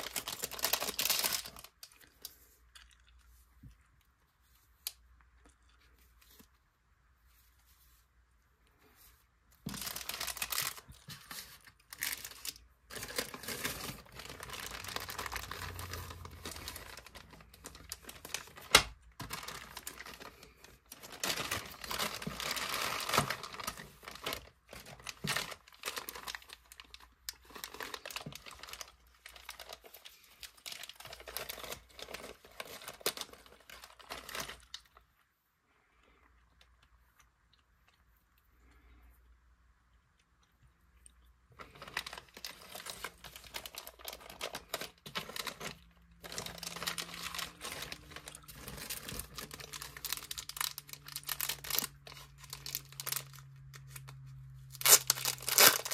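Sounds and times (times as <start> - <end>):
plastic packaging crinkling: 0.0 - 2.6, 9.6 - 35.1, 41.5 - 55.9.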